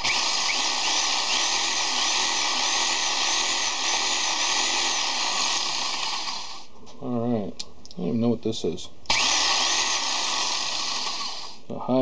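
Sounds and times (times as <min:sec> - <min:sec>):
reciprocating saw motor whining: 0:00.0 - 0:06.7, 0:09.1 - 0:11.6.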